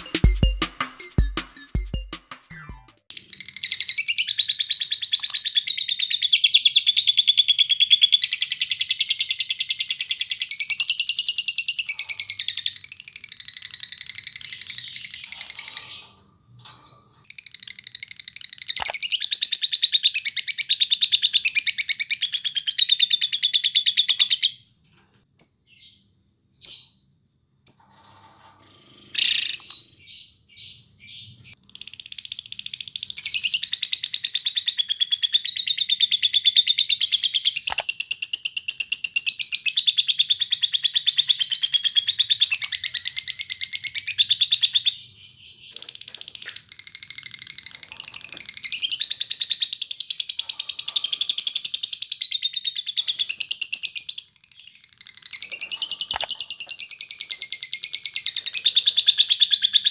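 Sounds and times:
bird chirps and calls: 3.1 - 16.2, 29.2 - 59.9
bird chattering trill: 37.5 - 38.1, 45.7 - 52.2, 53.1 - 59.9.

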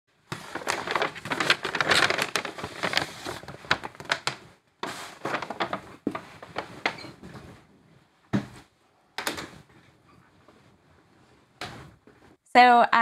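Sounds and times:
paper bag rustling and crinkling: 0.3 - 7.6.

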